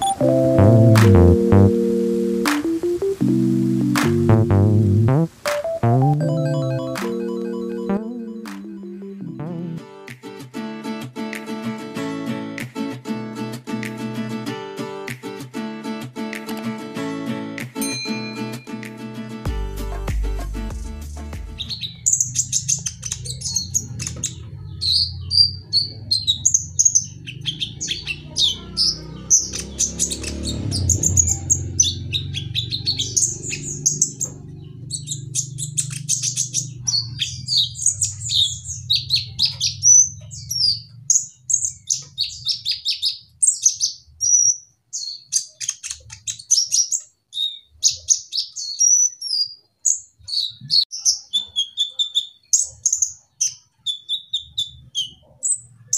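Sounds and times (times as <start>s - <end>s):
bird chirping and trilling: 0.0s - 9.5s, 21.6s - 55.9s.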